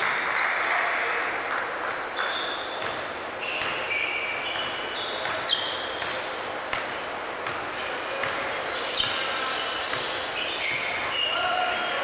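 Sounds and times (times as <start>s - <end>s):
sneakers squeaking on gym floor: 1.2s - 12.0s
basketball bouncing: 2.1s - 9.3s, 9.9s - 11.1s.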